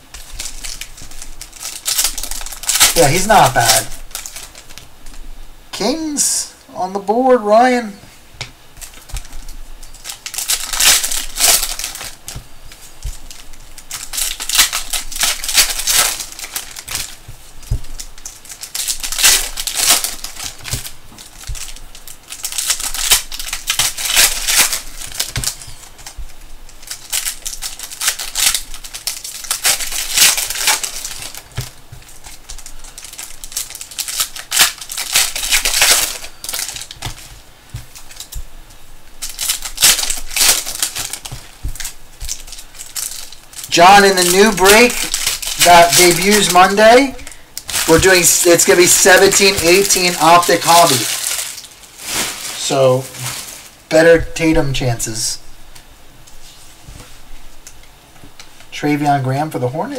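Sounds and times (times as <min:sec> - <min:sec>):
wrapper crinkling and rustling: 0:00.0 - 0:06.4, 0:07.1 - 0:58.8.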